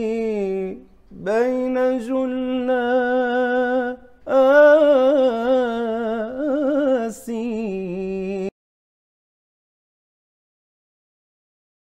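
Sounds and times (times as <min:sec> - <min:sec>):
man singing melismatically: 0:00.0 - 0:08.6.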